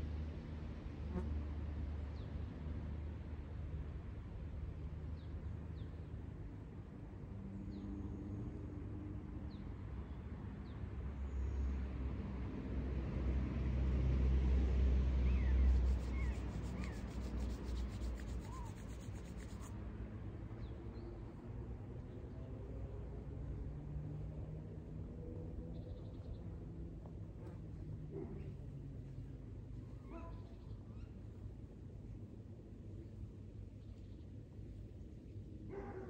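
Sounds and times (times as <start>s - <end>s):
distant vehicle rumble: 13.8s - 20.5s.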